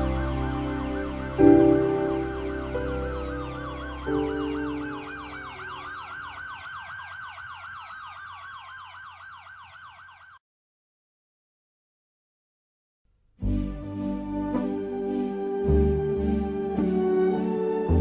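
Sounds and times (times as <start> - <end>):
low synth chords: 0.0 - 6.1, 13.4 - 18.0
fast siren-like warble: 2.1 - 10.4.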